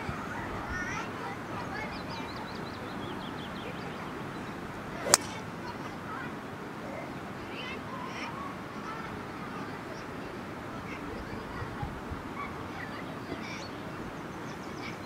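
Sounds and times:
golf club cracking on ball: 5.0s - 5.5s
golf club swish: 5.0s - 5.5s.

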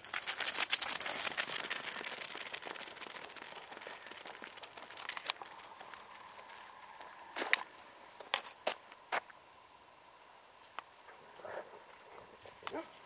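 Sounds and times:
dog running on gravel: 0.0s - 7.6s.

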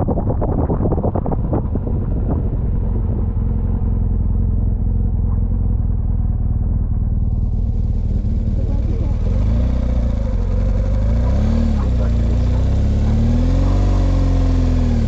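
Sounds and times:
wind buffeting microphone: 0.0s - 5.6s
motorcycle engine running: 0.0s - 15.0s.

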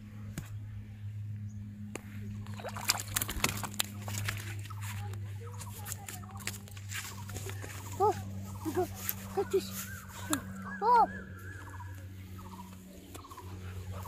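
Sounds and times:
steady low hum: 0.0s - 14.0s
fish splashing in water: 2.3s - 5.0s.

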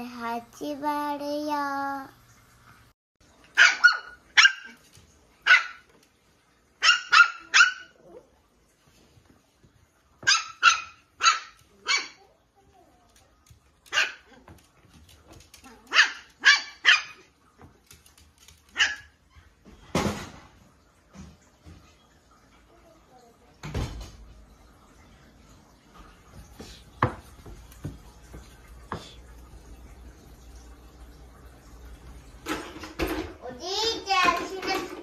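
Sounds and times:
small dog yapping: 3.6s - 4.8s, 5.4s - 5.8s, 6.8s - 8.2s, 10.2s - 12.3s, 13.9s - 14.5s, 15.6s - 17.3s, 18.7s - 19.2s.

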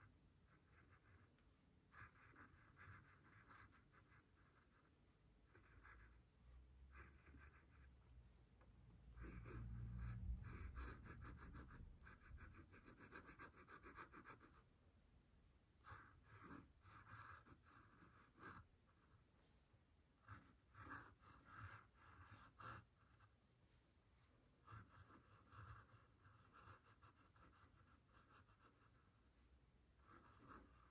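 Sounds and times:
pen scratching on paper: 0.5s - 6.2s, 6.9s - 7.9s, 9.2s - 14.6s, 15.8s - 19.2s, 20.2s - 23.4s, 24.6s - 29.4s, 30.0s - 30.9s.

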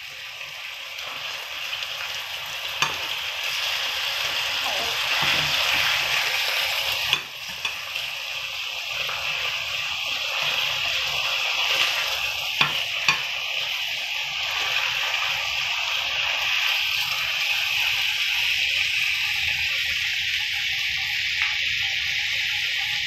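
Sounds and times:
steak sizzling in a frying pan: 0.0s - 23.0s
metal fork clicking on pan: 2.8s - 3.1s, 7.1s - 7.8s, 12.6s - 13.3s.

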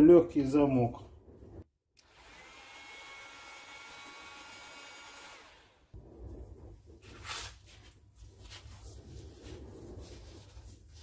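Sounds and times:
heat gun fan whine: 2.0s - 5.8s.

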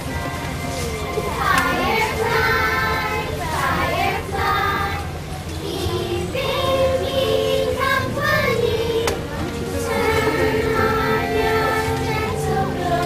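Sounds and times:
children singing: 0.8s - 13.0s
musical accompaniment: 5.6s - 13.0s.

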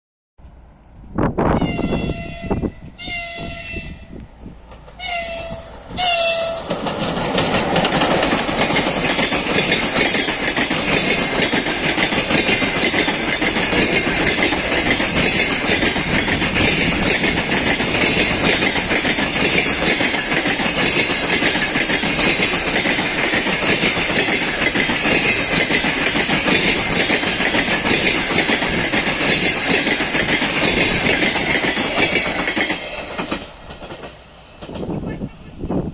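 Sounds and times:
train wheels rushing on rails: 0.4s - 35.9s
locomotive horn toots: 1.4s - 4.2s, 5.0s - 6.7s.

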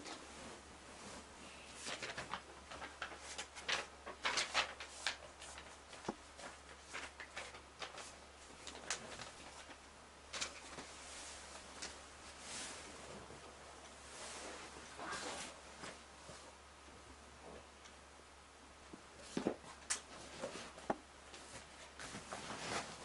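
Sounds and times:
paper crinkling and rustling: 1.8s - 10.9s.

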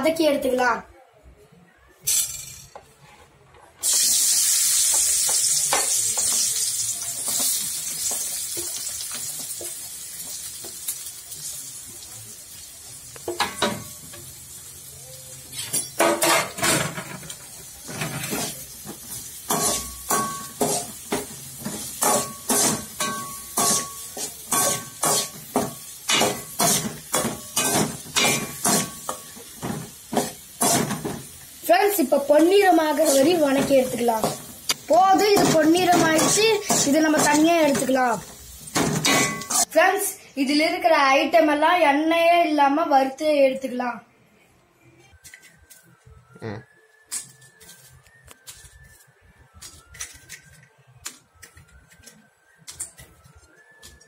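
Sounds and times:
onion sizzling in hot oil: 3.8s - 16.0s, 17.0s - 39.7s.

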